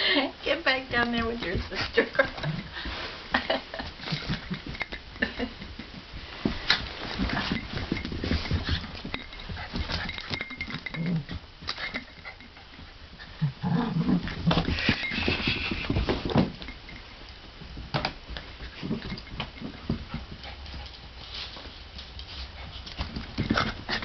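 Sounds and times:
knocks and scuffling: 0.5s - 24.0s.

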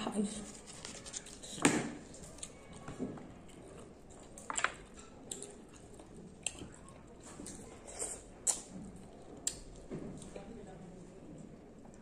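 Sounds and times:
wet mouth clicks eating: 7.4s - 9.8s.

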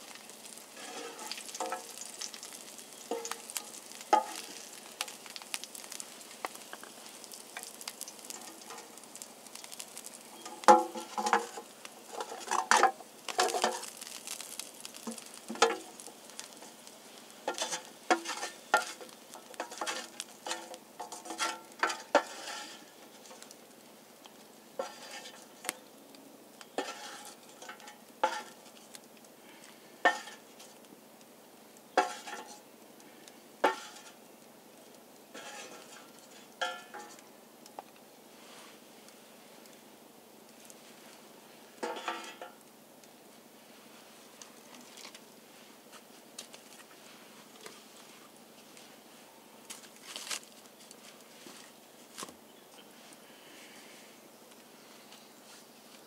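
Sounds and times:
food sizzling in a skillet: 0.0s - 26.0s, 26.6s - 30.8s, 31.8s - 34.4s, 35.2s - 37.3s, 40.5s - 42.8s.

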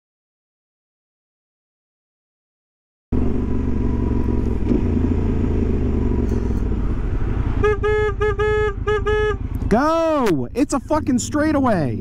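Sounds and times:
motorcycle engine running: 3.1s - 12.0s
wind and road noise: 3.1s - 12.0s.

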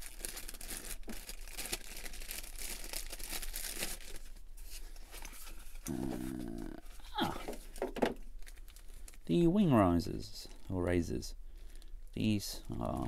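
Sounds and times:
packaging crinkling: 0.0s - 9.3s.

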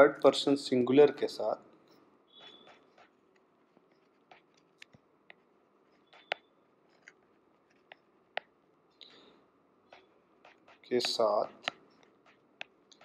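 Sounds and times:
low steady hiss: 0.0s - 13.0s
stylus tapping on tablet: 2.3s - 8.6s, 9.9s - 13.0s.

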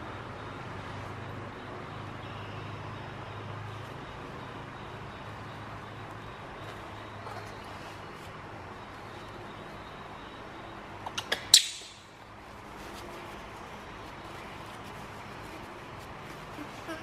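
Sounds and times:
faint rustles: 12.4s - 17.0s.

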